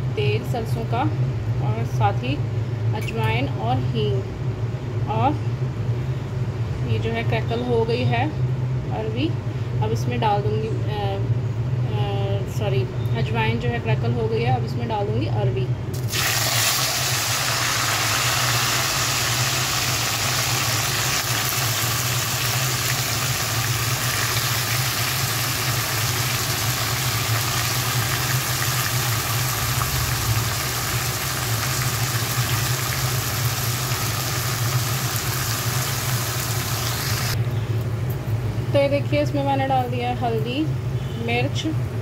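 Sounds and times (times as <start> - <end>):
low mechanical hum: 0.0 - 42.0
vegetables sizzling in hot oil: 16.0 - 37.4.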